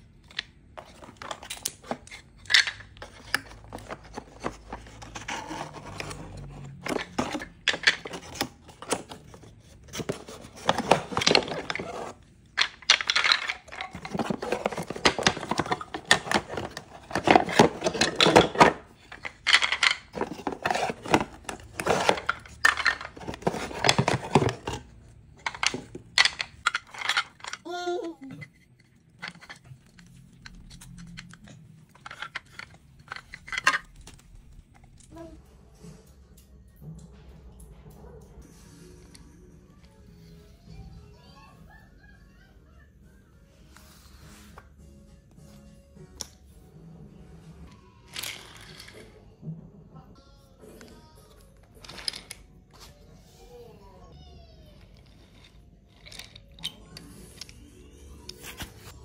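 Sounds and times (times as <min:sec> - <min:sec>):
wooden toy track pieces clacking: 0:00.2 - 0:35.1, 0:48.1 - 0:49.2, 0:51.4 - 0:52.4, 0:54.9 - 0:57.6
cardboard rustling and scraping: 0:00.8 - 0:12.3, 0:13.2 - 0:27.3.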